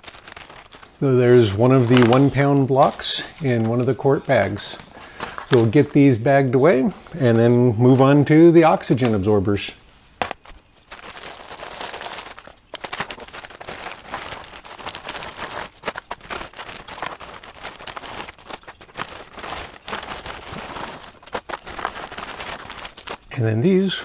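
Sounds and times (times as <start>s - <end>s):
dry food pieces crackling: 0.0s - 9.2s, 10.2s - 23.9s
plastic bag crinkling: 0.0s - 9.3s, 10.2s - 23.8s.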